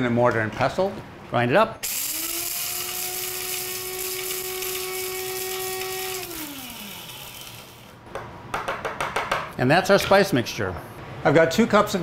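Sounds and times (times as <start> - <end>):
spice grinder motor whine: 1.8 - 8.0
motor spinning down: 1.9 - 7.9.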